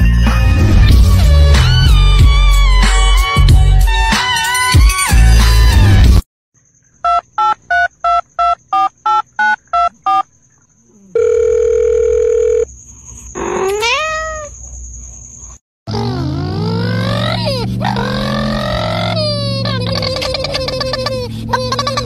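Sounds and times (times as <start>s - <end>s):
music: 0.0s - 6.2s
telephone keypad beeps: 7.0s - 10.2s
steady phone tone: 11.1s - 12.7s
cat meowing: 13.5s - 14.6s.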